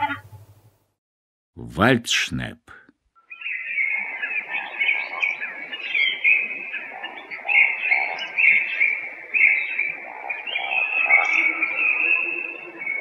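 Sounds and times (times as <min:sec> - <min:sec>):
woodcock calling: 0:03.2 - 0:13.0.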